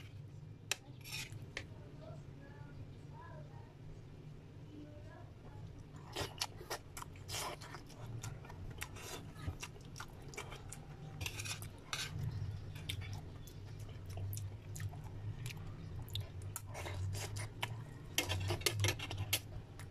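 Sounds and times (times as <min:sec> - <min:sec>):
steady low hum: 0:00.0 - 0:19.9
metal spoon scraping ceramic plate: 0:01.0 - 0:01.4.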